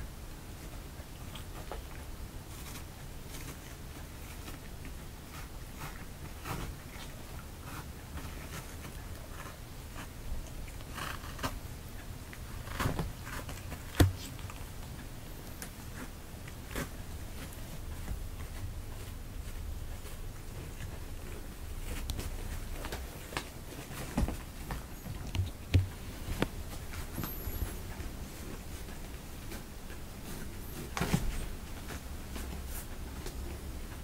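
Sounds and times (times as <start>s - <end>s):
low steady hum: 0.0s - 34.0s
cat claws scratching fabric: 2.5s - 11.6s.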